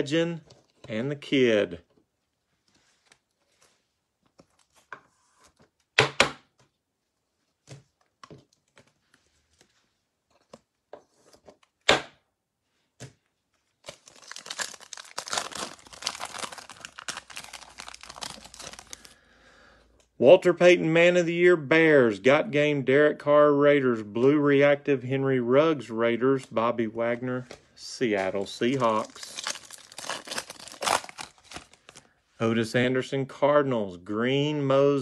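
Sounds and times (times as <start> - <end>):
foil pack being torn open: 13.9 - 19.2, 28.9 - 32.0.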